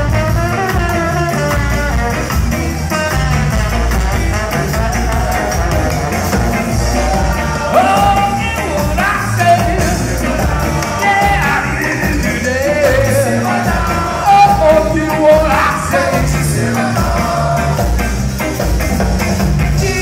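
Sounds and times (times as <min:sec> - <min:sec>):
bass line: 0:00.0 - 0:20.0
electric guitar: 0:00.0 - 0:20.0
horn section playing: 0:00.0 - 0:20.0
group singing: 0:03.8 - 0:19.0.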